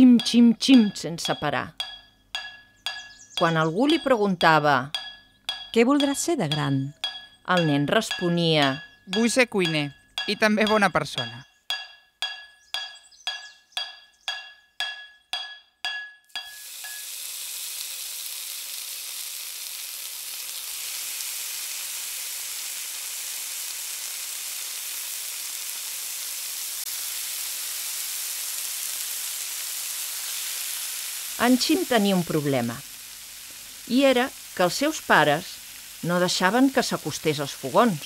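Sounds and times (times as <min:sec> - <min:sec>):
food sizzling in a pan: 0:00.0 - 0:09.3, 0:16.3 - 0:38.0
metal pot being struck: 0:00.0 - 0:17.1.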